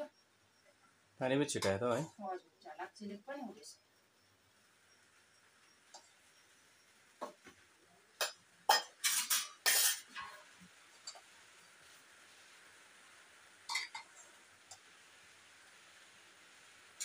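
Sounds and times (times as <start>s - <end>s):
rain hiss: 0.0s - 17.0s
steel plates and pot clanking: 1.5s - 2.1s, 8.2s - 11.3s, 13.7s - 14.2s.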